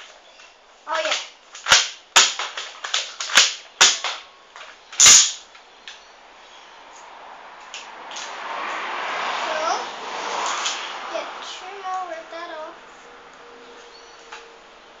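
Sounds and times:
toy gun clacks and snaps: 0:00.9 - 0:06.0.

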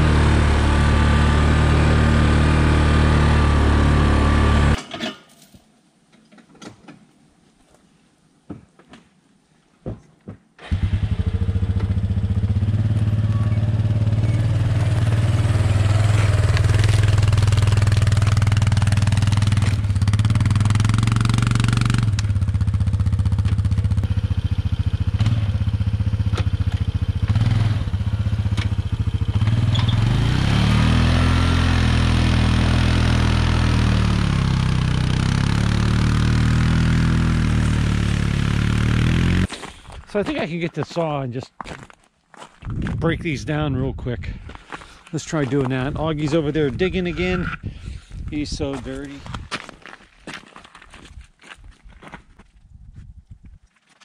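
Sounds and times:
engine running under load: 0:00.0 - 0:04.8, 0:10.6 - 0:39.5.

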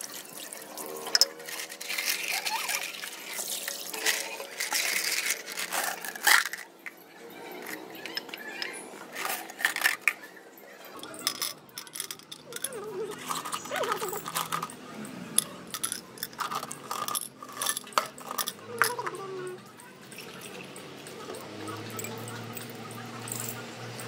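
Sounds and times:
glass tumbler clinking: 0:00.8 - 0:10.3, 0:10.9 - 0:14.8, 0:15.4 - 0:21.2
small stones clinking: 0:01.0 - 0:07.0, 0:10.9 - 0:14.8, 0:15.4 - 0:19.2.

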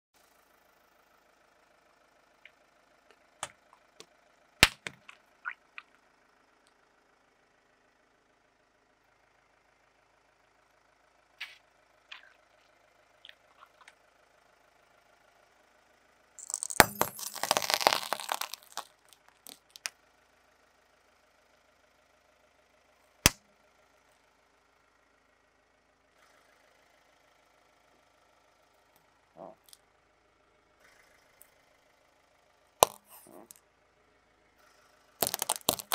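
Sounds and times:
faint car engine idling: 0:00.2 - 0:35.9
sharp crack: 0:04.6 - 0:05.2, 0:16.4 - 0:19.9, 0:32.8 - 0:33.6, 0:35.2 - 0:35.9
tyre crushing brittle objects: 0:16.4 - 0:19.9, 0:32.8 - 0:33.6, 0:35.2 - 0:35.9.

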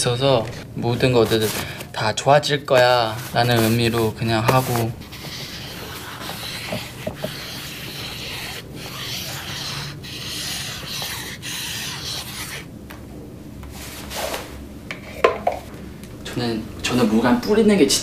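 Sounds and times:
marker rubbing across fabric: 0:02.8 - 0:12.7.

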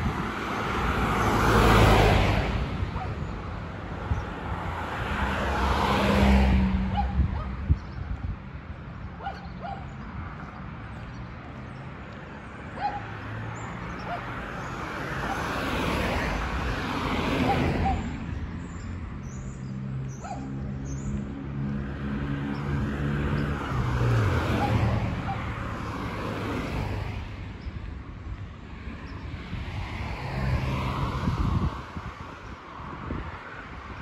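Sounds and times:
car passing by: 0:00.0 - 0:03.1, 0:04.4 - 0:07.1, 0:13.1 - 0:18.7, 0:19.6 - 0:27.4, 0:28.7 - 0:34.0.

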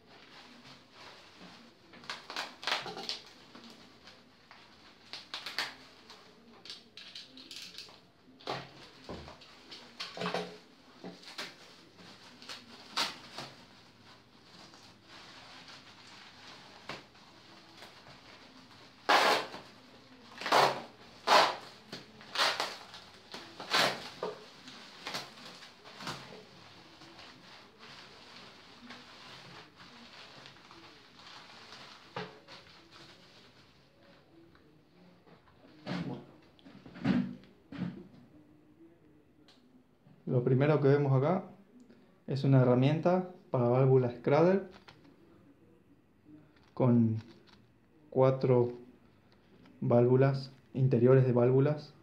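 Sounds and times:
bubble wrap crinkling: 0:00.0 - 0:07.9, 0:10.9 - 0:34.4.

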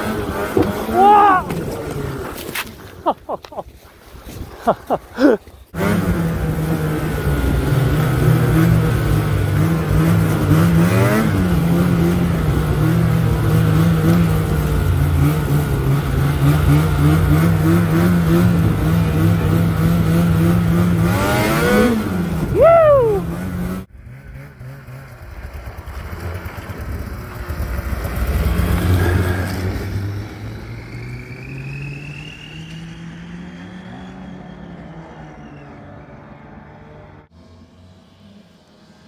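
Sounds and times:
snowmobile engine running: 0:00.0 - 0:30.4.

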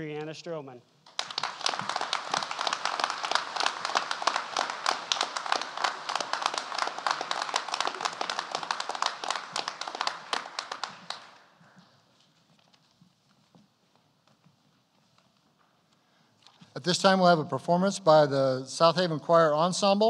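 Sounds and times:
crowd applause: 0:01.1 - 0:11.8.

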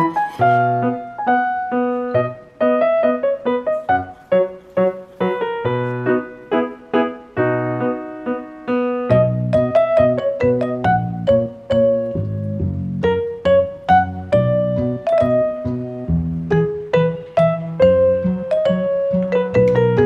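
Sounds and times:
piano tune: 0:00.0 - 0:20.0.

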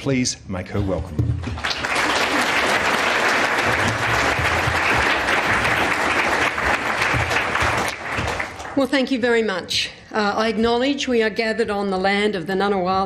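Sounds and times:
large audience applauding: 0:01.4 - 0:09.2.

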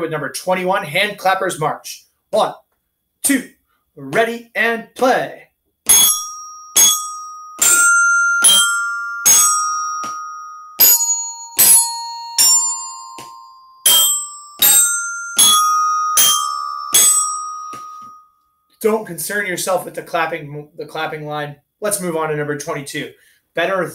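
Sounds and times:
glockenspiel melody: 0:05.9 - 0:18.5.

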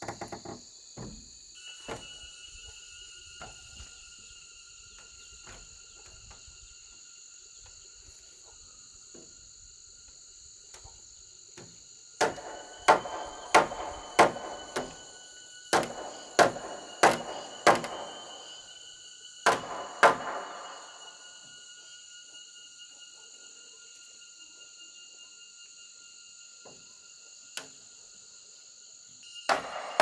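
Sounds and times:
wooden knocks: 0:00.0 - 0:02.1
high insect buzzing: 0:00.0 - 0:30.0.

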